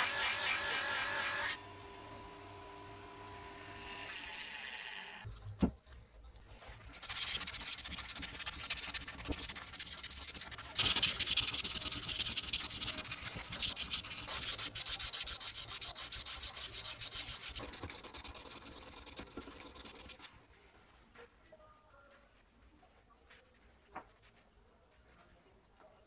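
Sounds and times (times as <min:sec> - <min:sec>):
sandpaper rubbing on metal: 0:06.9 - 0:20.3.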